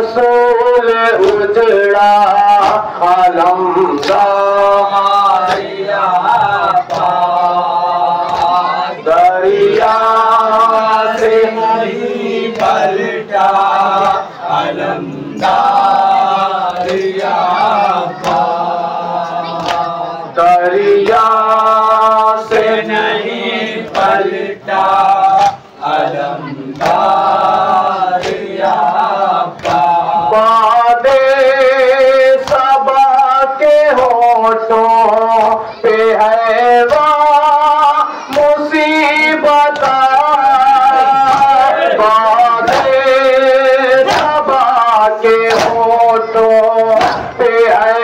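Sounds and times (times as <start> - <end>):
man leading chant through microphone: 0.0 - 48.0
men chanting in unison: 0.0 - 48.0
hands slapping chests: 2.6 - 2.9, 3.9 - 4.4, 5.4 - 5.8, 6.6 - 7.3, 8.2 - 8.7, 12.5 - 12.9, 16.7 - 17.5, 18.1 - 18.7, 19.5 - 19.9, 23.9 - 24.3, 25.4 - 27.2, 28.1 - 28.9, 29.5 - 30.0, 32.4 - 32.7, 39.7 - 40.1, 41.0 - 41.7, 42.6 - 43.1, 44.0 - 44.7, 45.4 - 46.0, 46.9 - 47.4.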